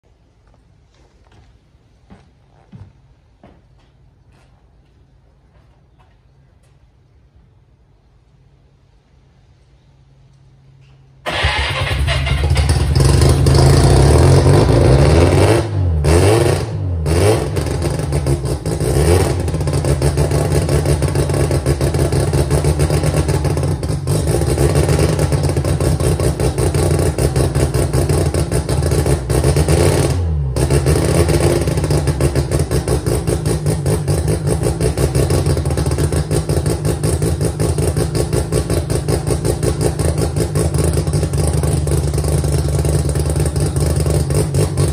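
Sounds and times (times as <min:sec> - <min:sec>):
car engine starting: 0:11.2 - 0:44.9
engine revving and idling: 0:11.3 - 0:44.9.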